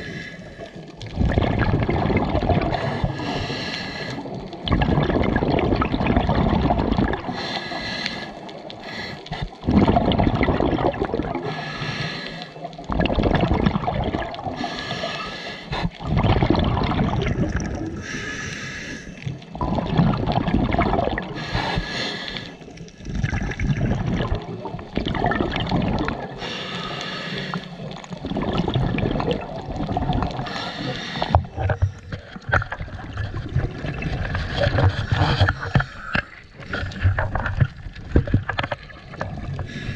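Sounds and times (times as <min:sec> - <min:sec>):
regulator hiss on inhale: 0:00.0 - 0:00.8, 0:02.7 - 0:04.3, 0:07.3 - 0:09.6, 0:11.5 - 0:12.6, 0:14.6 - 0:16.0, 0:18.0 - 0:19.3, 0:21.4 - 0:22.8, 0:26.4 - 0:28.0, 0:30.4 - 0:31.5, 0:39.7 - 0:39.9
exhaled bubbles gushing: 0:00.8 - 0:07.6, 0:08.4 - 0:11.8, 0:12.6 - 0:18.2, 0:19.2 - 0:26.9, 0:27.5 - 0:39.9.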